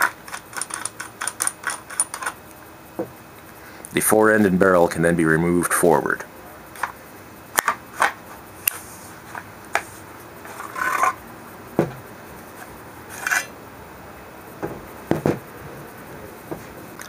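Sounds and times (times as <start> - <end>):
metal and wood clicks: 0.0 - 2.5
shotgun barrel scraping: 8.7 - 11.2, 12.6 - 13.5.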